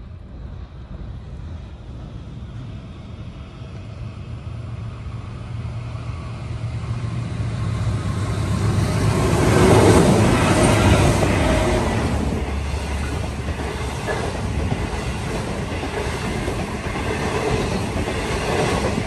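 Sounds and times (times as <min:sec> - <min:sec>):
locomotive engine drone: 0:00.0 - 0:19.0.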